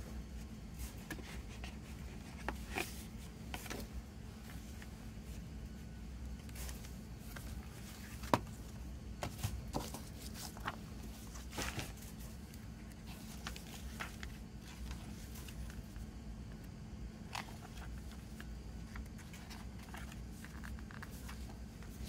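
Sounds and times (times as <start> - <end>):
paper rustling: 6.4 - 16.1, 17.2 - 22.0.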